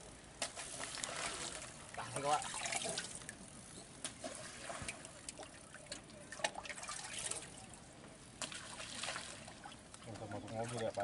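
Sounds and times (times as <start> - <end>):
little ticks of water: 4.8 - 7.3, 8.4 - 11.0
bait splashing on water: 8.4 - 10.0.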